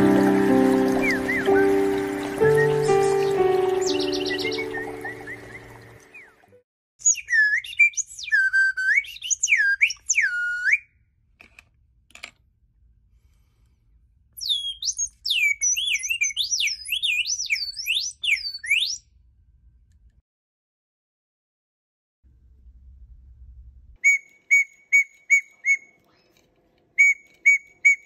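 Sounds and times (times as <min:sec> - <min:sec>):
slide whistle birdsong glides: 0:00.0 - 0:06.4, 0:07.0 - 0:10.9, 0:14.4 - 0:19.0, 0:24.0 - 0:26.0, 0:27.0 - 0:28.0.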